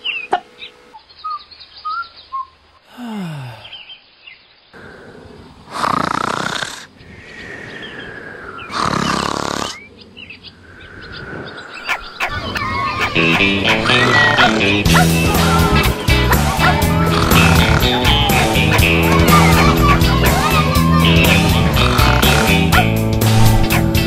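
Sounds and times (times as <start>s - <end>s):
birds chirping: 0.0s - 24.0s
cartoon snoring: 4.8s - 6.9s, 8.6s - 9.9s, 13.7s - 15.6s, 16.3s - 23.8s.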